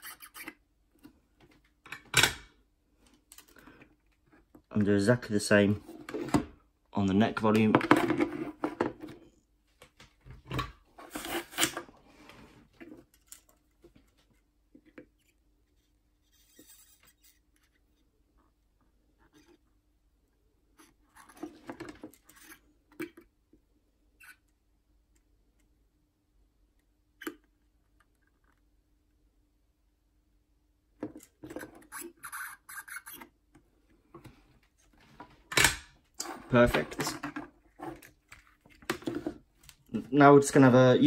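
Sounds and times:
small tools scraping and rustling: 10.9s - 18.0s, 36.2s - 39.8s.

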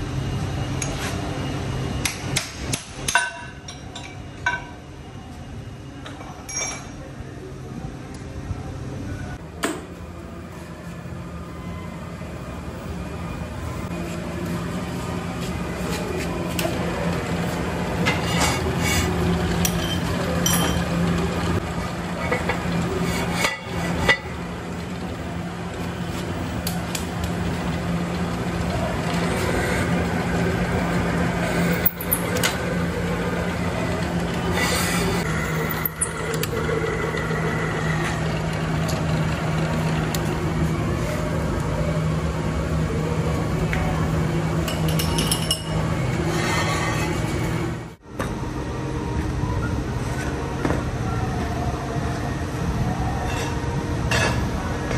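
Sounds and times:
drill press motor hum: 26.6s - 41.0s.

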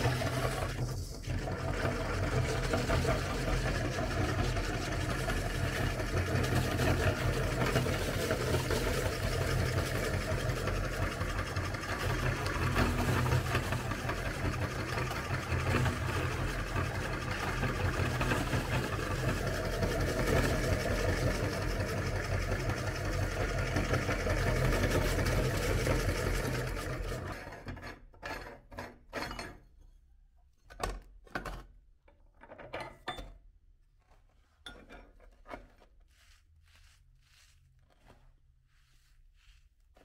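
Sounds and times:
electric meat grinder humming: 0.0s - 27.5s
knocks and rustles from handling parts: 29.0s - 35.9s.

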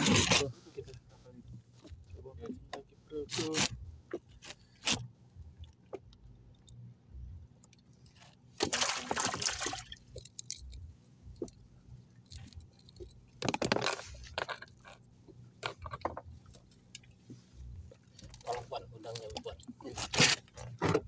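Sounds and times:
water splashing against boat hull: 8.6s - 10.3s.

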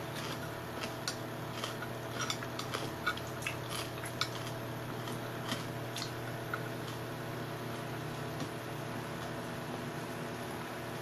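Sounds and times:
fork clicking against plate: 0.2s - 4.6s.

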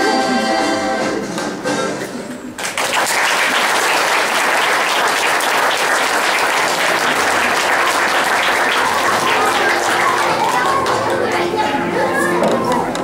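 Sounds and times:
audience applauding: 2.6s - 11.8s.

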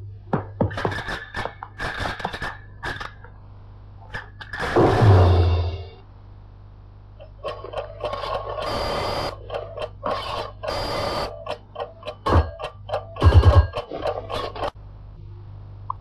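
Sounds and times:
loud low thumps: 4.8s - 6.0s
low hum: 4.8s - 7.2s.

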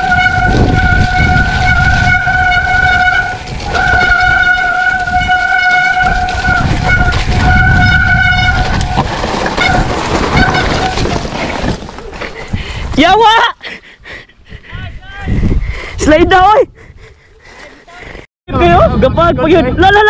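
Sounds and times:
wind on microphone: 0.0s - 13.0s, 14.4s - 20.0s
tyres rumbling on dirt: 0.0s - 13.3s.

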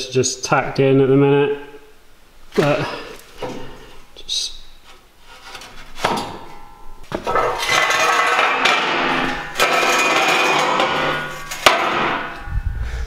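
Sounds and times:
metal frame scraping on concrete: 5.2s - 12.5s.

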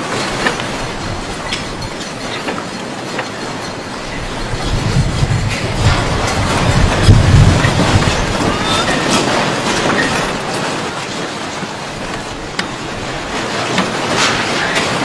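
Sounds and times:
rattling and clattering: 0.0s - 15.0s
deep earthquake rumble: 4.1s - 9.0s.

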